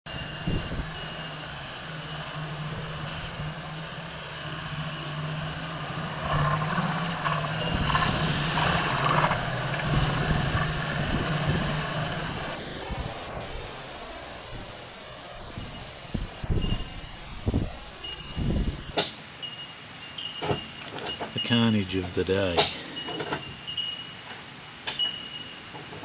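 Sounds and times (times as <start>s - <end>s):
engine droning: 0.0s - 23.9s
tyres rushing through mud: 0.1s - 19.3s.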